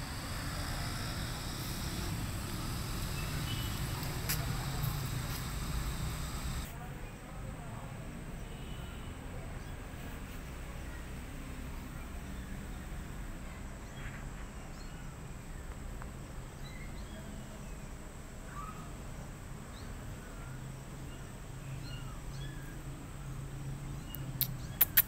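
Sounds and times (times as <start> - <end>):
faint high chirps: 0.0 - 6.7
steady low hum: 0.0 - 6.8.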